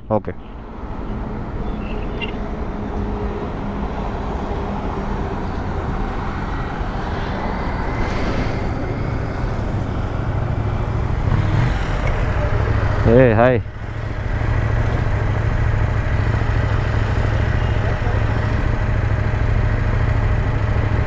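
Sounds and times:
road traffic noise: 0:00.0 - 0:21.0
motorcycle engine idling: 0:12.0 - 0:21.0.

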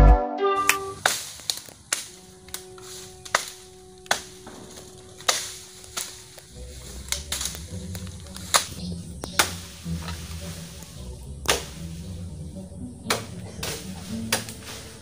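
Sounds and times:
intro music: 0:00.0 - 0:01.1, 0:02.1 - 0:15.0
woody cracks from bamboo: 0:01.0 - 0:10.4, 0:11.4 - 0:11.9, 0:13.0 - 0:15.0.

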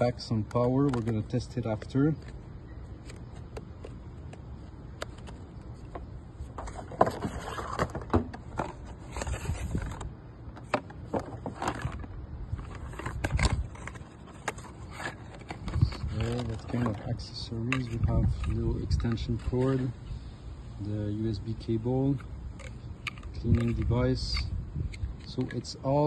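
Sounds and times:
cardboard packaging handled: 0:00.0 - 0:18.6.

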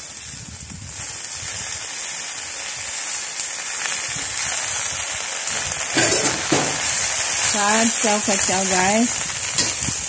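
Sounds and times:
leaves sizzling in hot wok: 0:00.0 - 0:10.0
metal spatula scraping wok: 0:05.5 - 0:10.0.

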